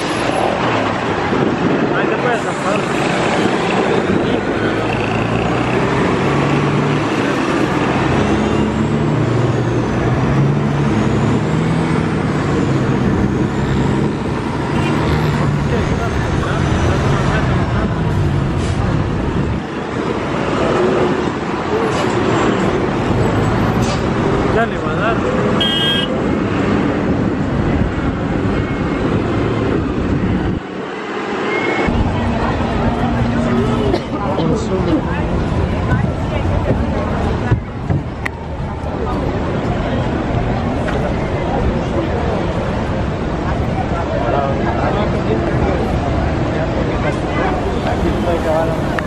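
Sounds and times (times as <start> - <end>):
wind rumbling on microphone: 0.0 - 8.2, 25.3 - 30.9
road and wind noise: 0.0 - 49.0
vehicle engine hum: 0.0 - 49.0.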